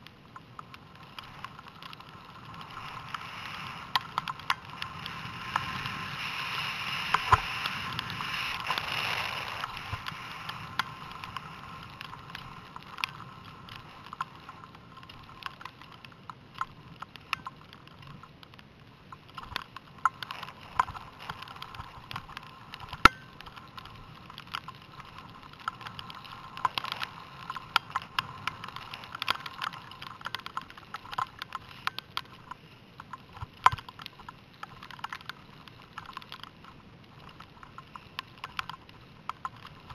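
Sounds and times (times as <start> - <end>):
skis sliding over snow: 0.0 - 39.9
small clicks and knocks: 0.0 - 39.9
rush of air noise: 1.0 - 15.4.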